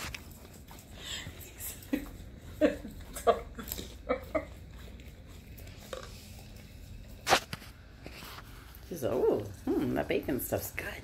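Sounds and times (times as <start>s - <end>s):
dog licking ice cream: 0.2s - 7.2s.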